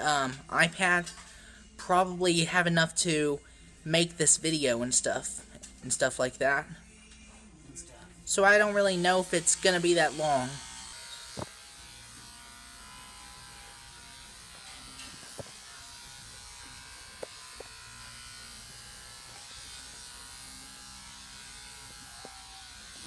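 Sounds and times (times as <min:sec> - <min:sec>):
electric clippers buzzing: 0:08.3 - 0:23.0.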